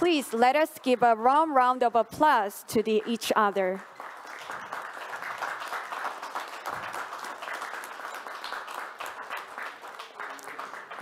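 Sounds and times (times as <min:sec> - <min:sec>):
group clapping: 0:02.8 - 0:11.0.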